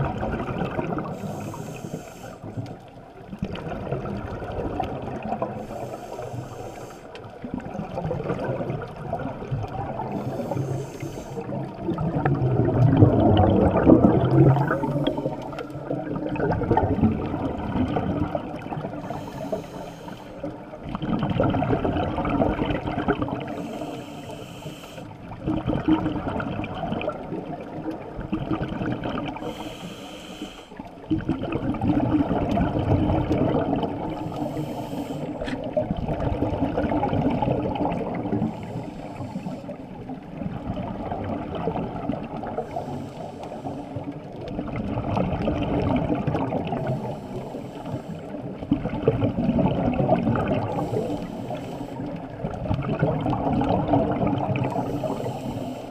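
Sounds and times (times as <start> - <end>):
exhale bubbling rumble: 0.0 - 24.4, 25.2 - 30.1, 30.9 - 47.6, 48.2 - 55.9
regulator inhale hiss: 1.0 - 2.8, 5.5 - 7.3, 10.1 - 11.7, 18.9 - 20.5, 23.4 - 25.2, 29.4 - 30.9, 34.1 - 35.7, 38.4 - 39.9, 42.6 - 44.3, 46.7 - 48.6, 50.6 - 52.3, 54.6 - 55.9.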